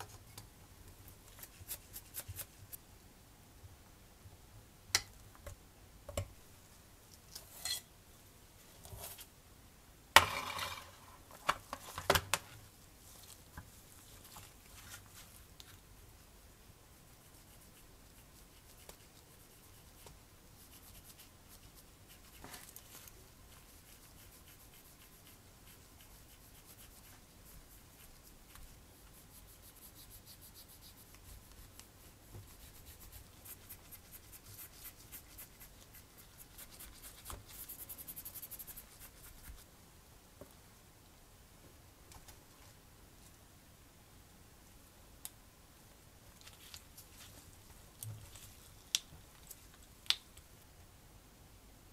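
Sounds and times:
makeup brush scratchy brushing: 1.3 - 2.8, 17.0 - 39.7.

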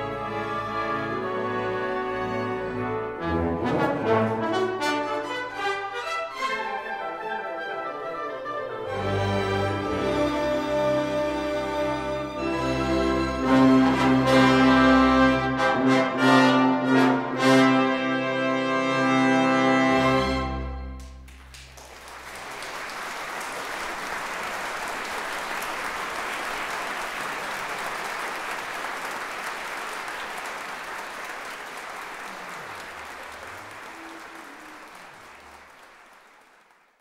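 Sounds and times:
orchestra brass chord: 0.0 - 21.2
audience applause: 21.0 - 37.0.

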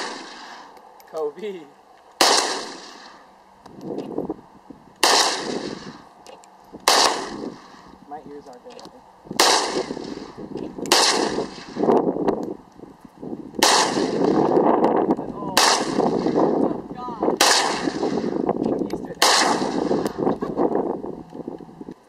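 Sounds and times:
rifle shots with echo: 0.0 - 0.7, 2.2 - 3.2, 5.0 - 6.0, 6.8 - 7.9, 9.3 - 11.9, 13.6 - 14.6, 15.4 - 16.6, 17.4 - 18.5, 19.1 - 20.2.

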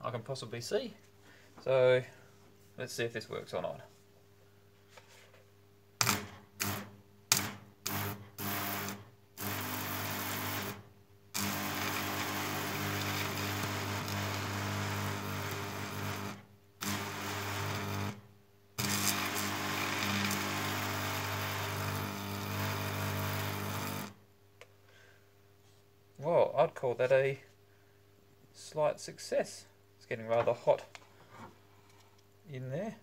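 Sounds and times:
electric arc buzzing and crackling: 6.0 - 24.2.

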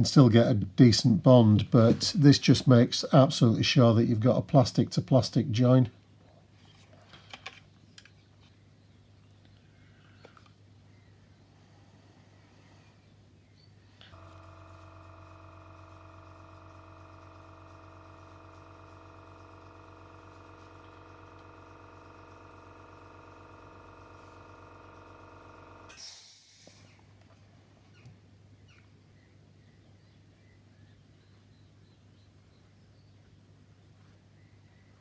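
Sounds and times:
electrical hum: 0.0 - 35.0
brief hiss: 25.9 - 27.1.

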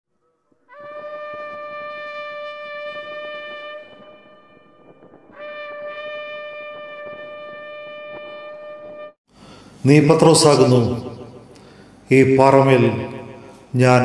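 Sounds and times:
shofar blasts: 0.2 - 9.2.

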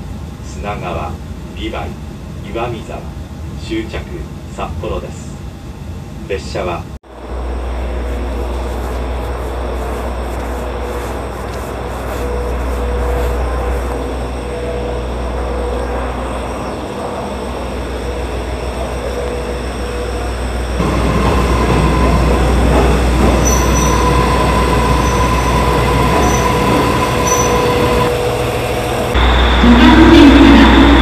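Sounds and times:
train rolling on rails: 7.0 - 31.0
high wheel squeals: 12.3 - 31.0.

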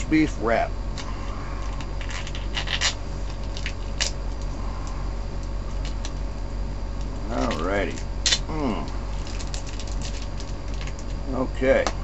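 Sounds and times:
plastic packaging crinkling: 1.6 - 4.4, 7.4 - 11.2.

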